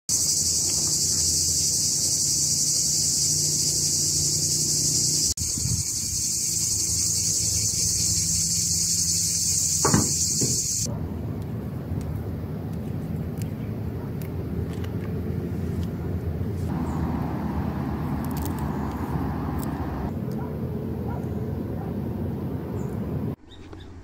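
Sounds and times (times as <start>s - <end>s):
insect chorus buzzing: 0.1s - 10.9s, 16.7s - 20.1s.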